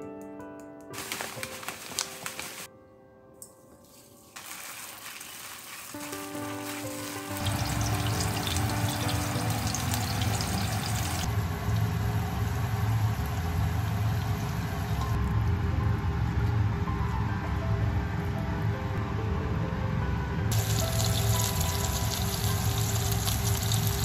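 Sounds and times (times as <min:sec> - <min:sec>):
patties sizzling in oil: 0:03.8 - 0:15.1, 0:20.5 - 0:24.0.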